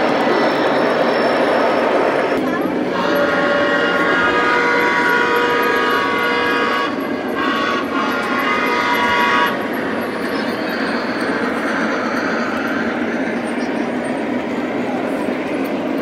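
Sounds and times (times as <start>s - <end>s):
model train running on track: 0.0s - 16.0s
model train electronic whistle: 2.9s - 12.9s.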